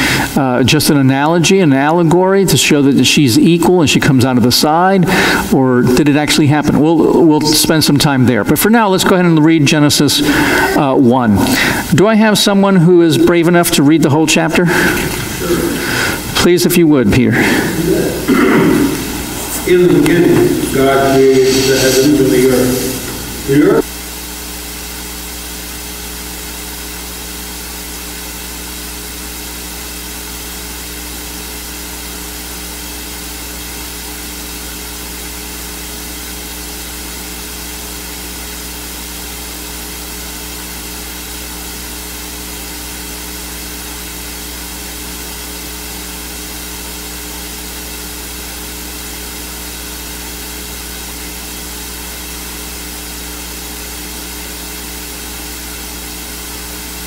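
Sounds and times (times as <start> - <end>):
electrical hum and hiss: 0.0 - 57.0.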